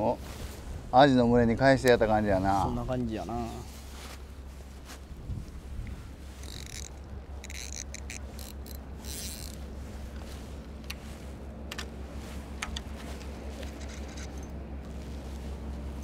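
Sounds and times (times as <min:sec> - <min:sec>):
steady low rumble: 0:00.0 - 0:16.0
fishing reel clicks and scrapes: 0:06.4 - 0:09.6, 0:13.6 - 0:14.4.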